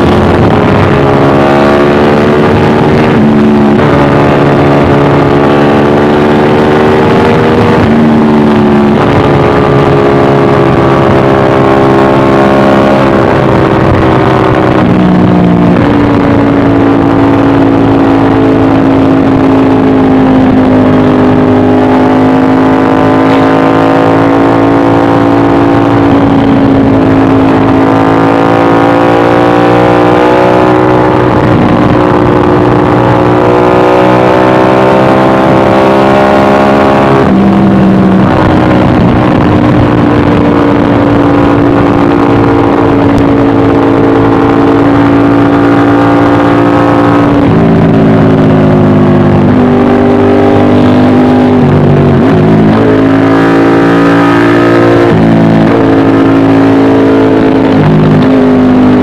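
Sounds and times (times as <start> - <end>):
motorcycle engine at speed: 0.0 - 59.0.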